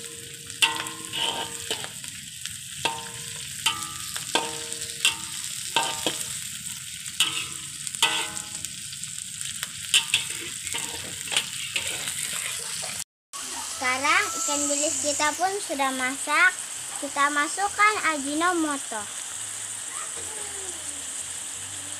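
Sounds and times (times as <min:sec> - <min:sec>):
food sizzling in hot oil: 0:00.0 - 0:21.9
metal ladle knocking against wok: 0:00.6 - 0:01.9, 0:02.9 - 0:06.4, 0:07.2 - 0:08.6.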